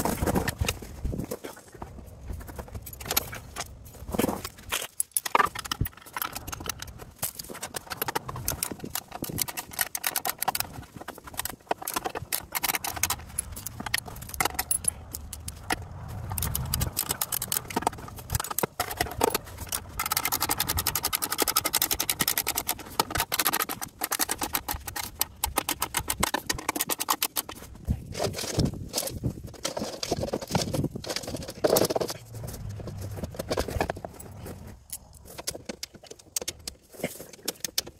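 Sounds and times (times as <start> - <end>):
metal hardware clinking: 4.5 - 27.6
fast ratchet clicking: 7.8 - 27.6.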